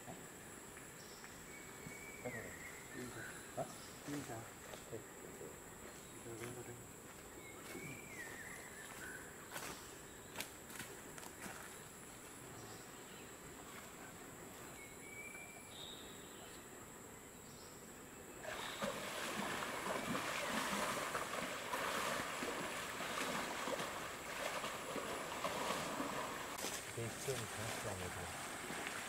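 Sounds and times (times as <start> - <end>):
faint bird chirps: 0.0 - 10.4, 11.3 - 19.0
feet splashing in muddy water: 18.5 - 29.0.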